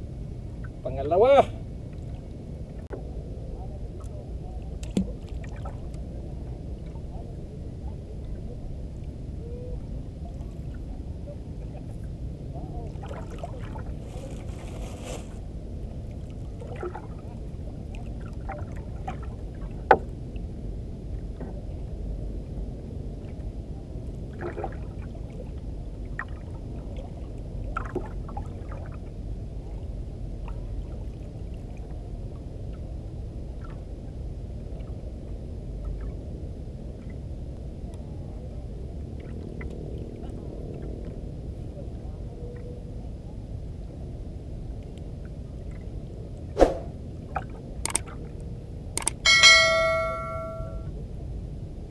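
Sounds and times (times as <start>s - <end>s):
low steady rumble: 0.0s - 51.9s
water lapping against boat hull: 3.8s - 7.3s, 10.2s - 20.5s, 23.2s - 32.8s.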